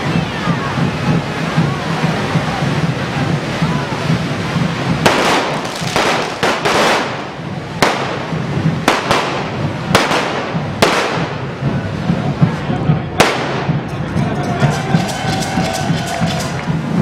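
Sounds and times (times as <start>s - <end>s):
firework fountains hissing: 0.0s - 17.0s
firecracker cracks: 4.3s - 11.8s, 12.4s - 17.0s.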